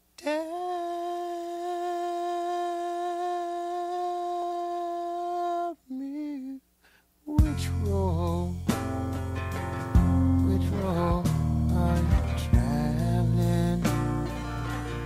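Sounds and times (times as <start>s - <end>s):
person singing long note: 0.2s - 6.6s.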